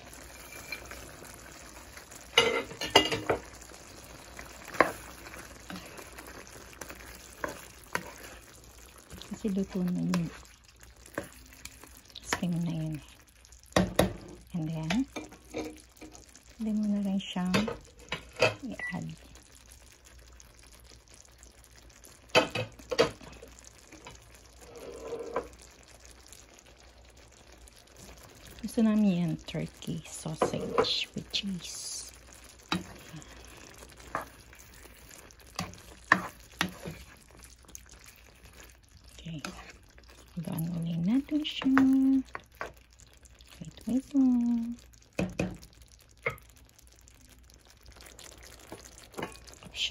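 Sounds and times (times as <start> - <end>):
spatula stirring and scraping: 0.0 - 16.4, 17.5 - 18.8, 22.0 - 44.2, 45.1 - 49.9
stew simmering in a pan: 0.0 - 49.9
knocks against a pan: 13.8 - 14.3, 45.2 - 45.6.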